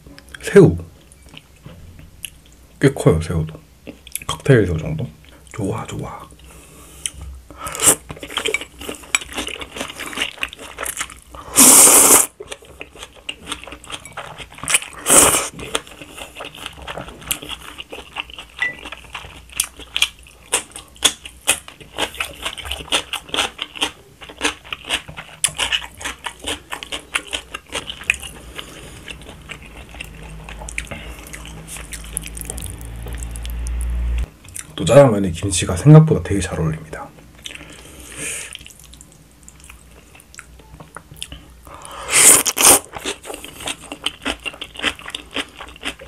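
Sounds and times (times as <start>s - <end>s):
person chewing: 7.0s - 34.8s, 38.4s - 46.0s.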